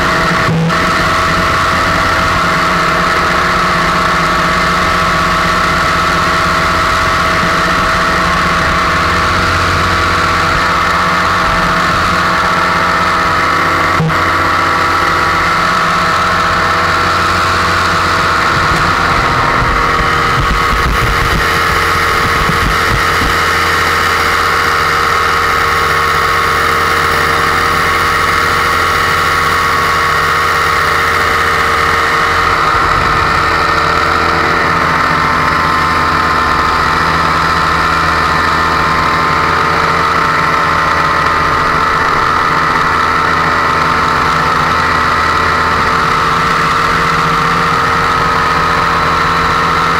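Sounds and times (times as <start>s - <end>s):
paramotor engine and propeller: 0.0s - 49.9s
wind buffeting microphone: 16.4s - 24.1s, 31.7s - 35.6s.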